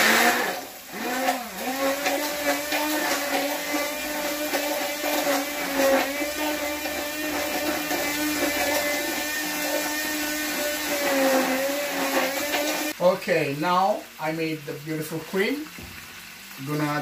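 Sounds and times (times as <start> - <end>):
stick blender motor hum: 0.0 - 13.0.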